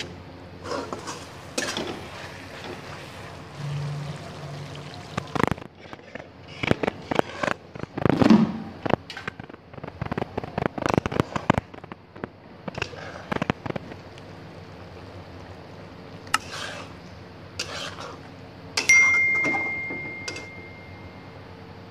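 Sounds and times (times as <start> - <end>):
steady low hum: 0.0 - 21.9
sharp clink with ringing tone: 18.8 - 21.2.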